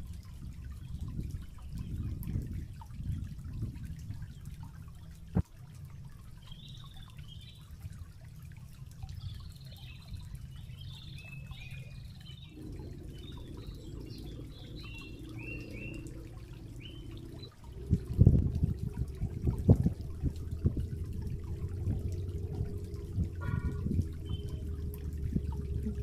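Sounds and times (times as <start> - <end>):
water trickling among rocks: 0.0 - 26.0
small birds chirping: 9.0 - 17.8, 24.2 - 24.7.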